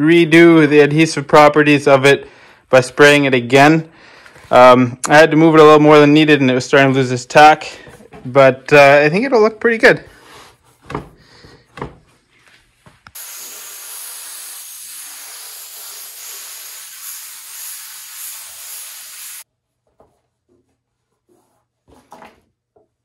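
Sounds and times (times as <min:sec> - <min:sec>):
spray gun hissing: 0:13.2 - 0:19.4.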